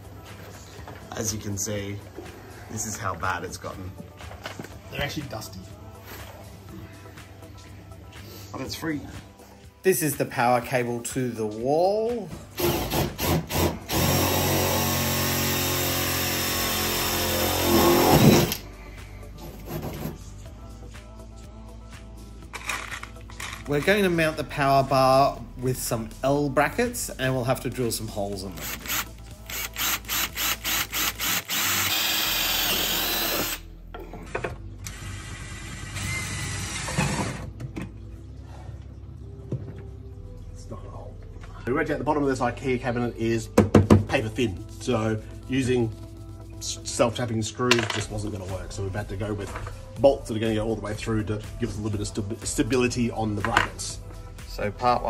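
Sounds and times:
cordless drill boring into wood: 12.6 - 18.6, 28.6 - 33.6, 34.9 - 37.3
knock: 43.6 - 44.1.

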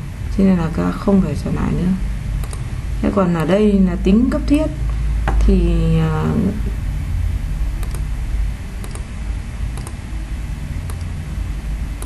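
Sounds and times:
steady low hum: 0.0 - 12.0
computer mouse clicking: 2.4 - 2.7, 7.8 - 8.1, 8.8 - 9.1, 9.7 - 10.0, 10.8 - 11.2.

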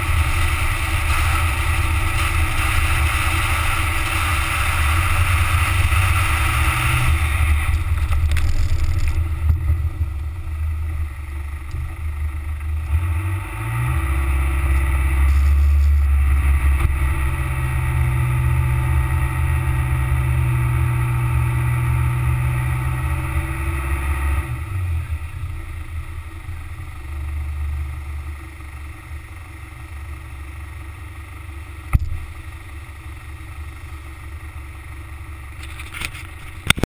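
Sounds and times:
car engine rumble: 0.0 - 36.9
sharp knock: 31.9 - 32.3.

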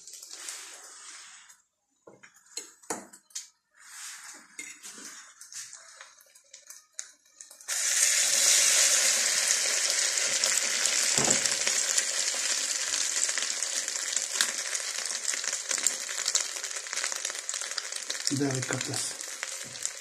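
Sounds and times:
mushroom frying in oil sizzling: 0.0 - 1.4, 5.6 - 20.0.

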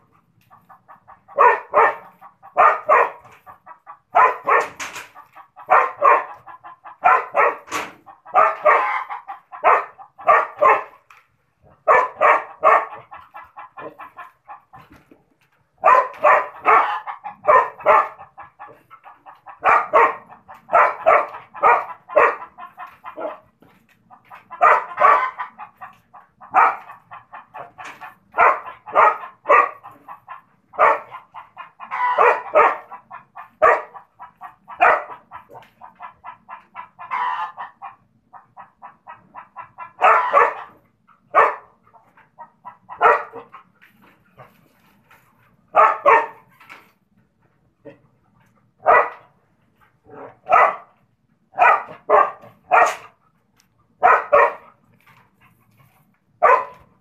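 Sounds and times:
dog barking: 0.9 - 5.0, 5.6 - 11.0, 11.6 - 14.2, 15.8 - 23.5, 24.4 - 25.8, 26.4 - 35.6, 39.6 - 43.6, 45.7 - 46.5, 48.8 - 49.4, 50.0 - 53.2, 54.0 - 54.8, 56.4 - 57.0.

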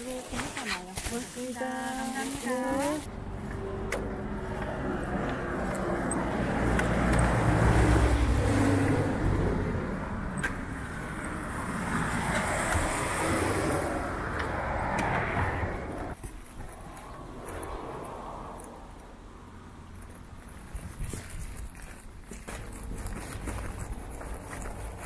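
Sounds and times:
car passing by: 2.3 - 16.2.

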